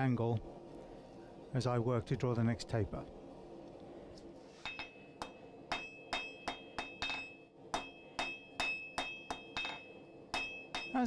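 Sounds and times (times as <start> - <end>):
hammer striking steel on anvil: 4.6 - 11.0.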